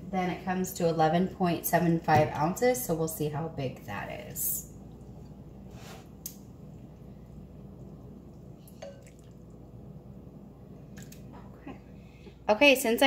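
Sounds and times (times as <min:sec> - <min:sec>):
low steady hum: 0:00.0 - 0:13.0
soup dripping and splashing: 0:04.8 - 0:10.0, 0:10.8 - 0:11.3.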